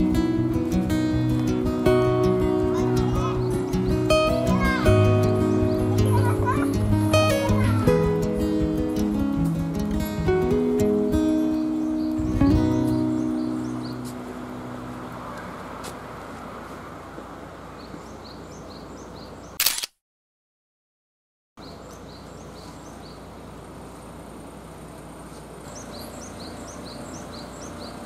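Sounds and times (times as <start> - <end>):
small bird chirping: 2.6 - 8.4, 11.3 - 15.0, 17.7 - 19.8, 21.6 - 23.4, 25.2 - 28.0.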